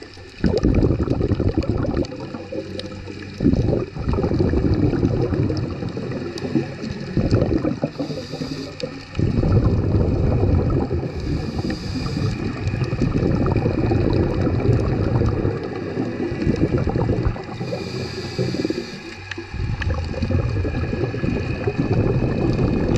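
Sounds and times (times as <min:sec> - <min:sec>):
exhaled bubbles burst: 0:00.0 - 0:22.9
underwater rushing and bubbling: 0:00.0 - 0:22.9
scuba breathing hiss: 0:06.1 - 0:09.3, 0:11.0 - 0:12.8, 0:17.2 - 0:19.9.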